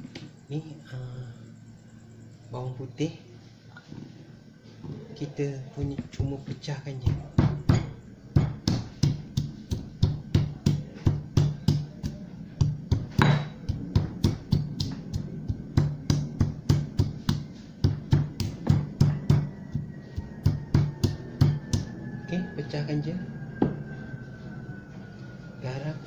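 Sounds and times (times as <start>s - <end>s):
pestle knocking in stone mortar: 5.8s - 21.9s.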